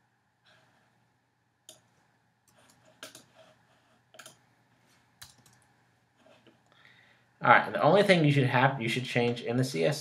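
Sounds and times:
mouse and keyboard clicks: 4.2 - 4.4.

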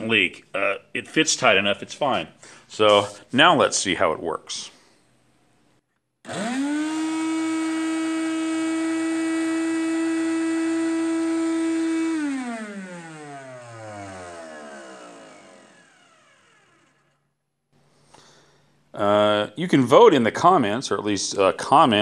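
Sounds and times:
vacuum motor whining: 6.3 - 17.2.

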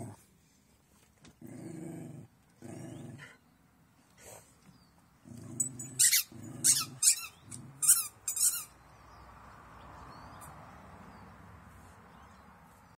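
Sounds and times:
dog growling: 1.4 - 3.4, 5.2 - 8.0.

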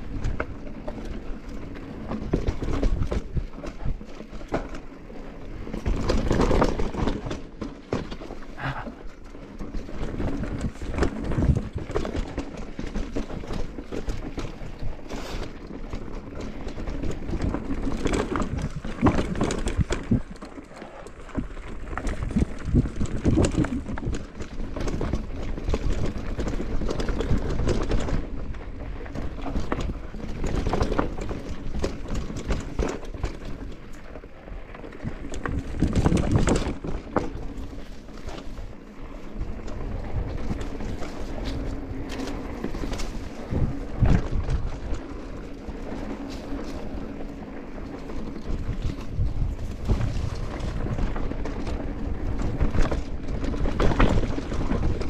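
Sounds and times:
mountain bike rattling on rough trail: 0.0 - 55.0.

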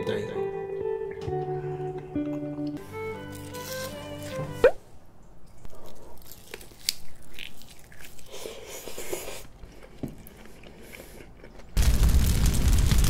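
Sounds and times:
person chewing wetly: 5.5 - 11.8.

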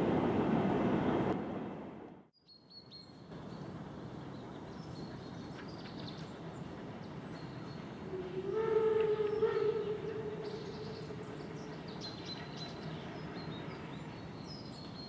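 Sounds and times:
passing train: 0.0 - 2.3, 3.3 - 15.0
birds chirping: 4.3 - 15.0
steam locomotive whistle: 8.1 - 12.0.

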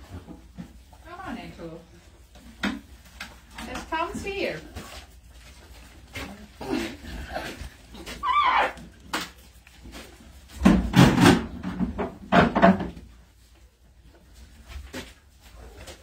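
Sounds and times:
animals rustling and bumping: 0.0 - 16.0
alpaca wavering call: 8.2 - 8.8.

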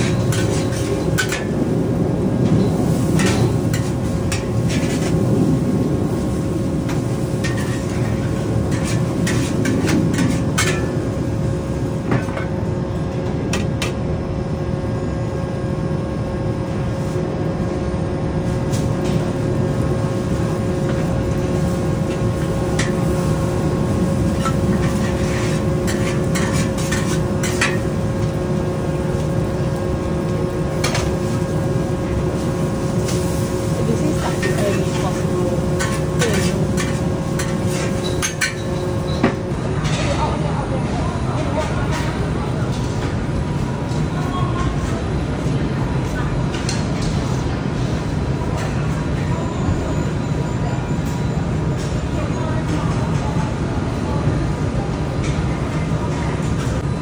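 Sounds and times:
ladle scraping and clanking in wok: 0.0 - 1.6, 2.6 - 5.2, 6.9 - 11.0, 22.1 - 28.4, 33.0 - 39.2
wok burner rumbling: 0.0 - 57.0.

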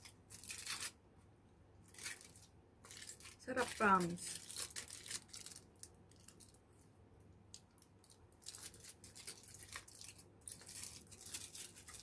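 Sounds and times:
foil rustling: 0.0 - 1.0, 1.9 - 6.4, 8.4 - 12.0.

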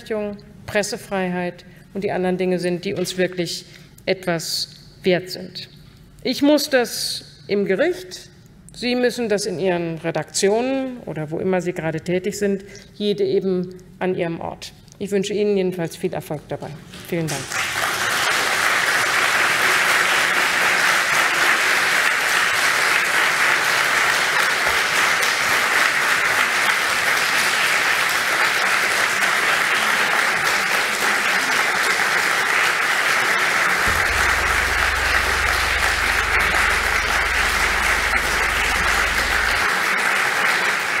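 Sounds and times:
audience applauding: 17.5 - 41.0.

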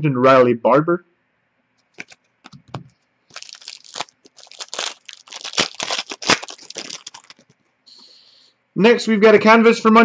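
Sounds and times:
foil wrapper crinkling: 2.0 - 7.6.

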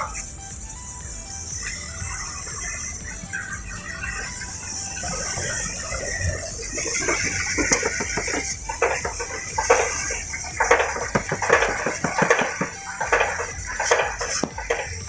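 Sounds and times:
spray nozzle hissing: 0.0 - 15.0
clattering and rattling: 5.5 - 15.0.

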